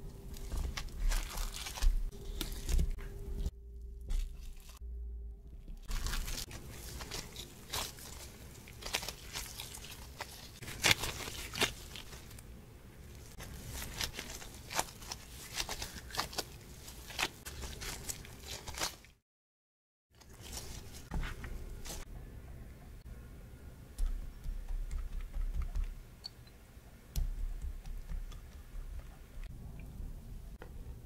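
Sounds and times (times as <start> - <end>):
dough crunching: 0.0 - 4.8, 5.7 - 19.2, 20.2 - 22.1, 23.9 - 26.1, 27.1 - 29.5
plastic gloves crinkling: 0.0 - 4.8, 5.6 - 19.2, 20.2 - 22.1.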